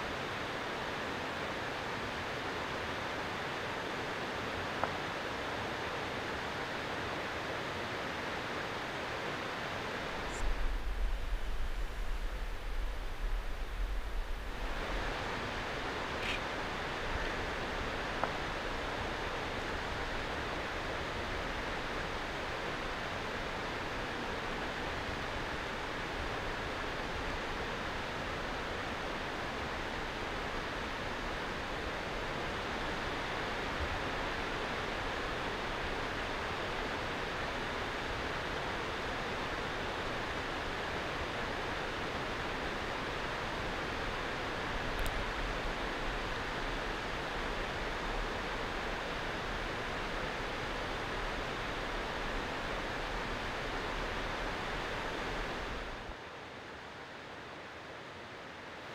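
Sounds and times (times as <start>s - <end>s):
rushing outdoor ambience: 0.0s - 58.9s
faint click: 45.0s - 45.2s.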